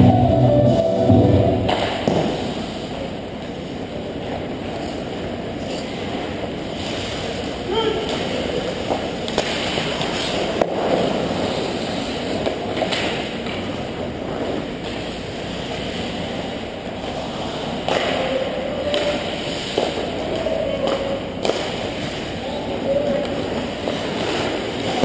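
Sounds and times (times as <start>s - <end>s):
arena noise: 0.0s - 25.0s
hockey sticks and puck clacking: 1.7s - 2.5s, 8.0s - 16.1s, 17.0s - 25.0s
skates scraping on ice: 8.1s - 25.0s.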